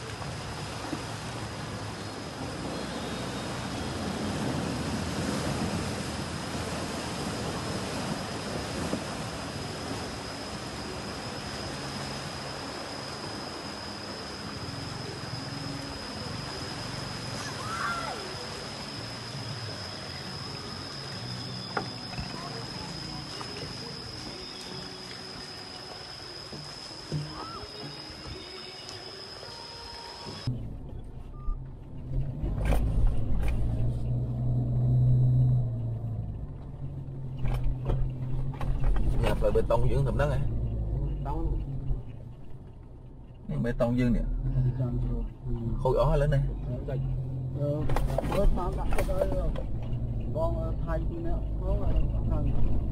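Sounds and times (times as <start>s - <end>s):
splashing flowing water: 0.0s - 31.0s
steady high-pitched tone: 7.3s - 31.7s
truck engine driving: 30.3s - 52.9s.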